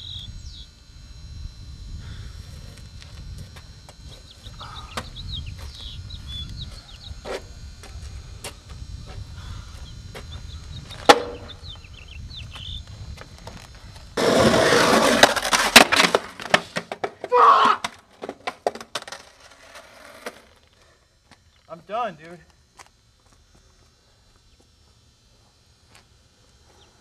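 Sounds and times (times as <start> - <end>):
small birds chirping: 0.0 - 0.8, 4.1 - 7.3, 9.0 - 13.0, 21.4 - 21.8
skateboard wheels rolling on concrete: 10.9 - 11.6, 12.6 - 20.8
skateboard knocking against wall: 11.1 - 11.5, 15.2 - 19.3.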